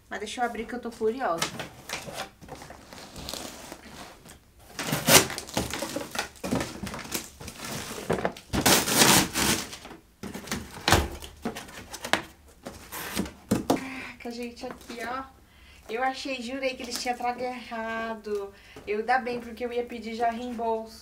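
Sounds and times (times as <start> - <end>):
cardboard scraping and rustling: 1.4 - 13.6
blade slitting packing tape: 4.8 - 6.2, 8.6 - 9.9.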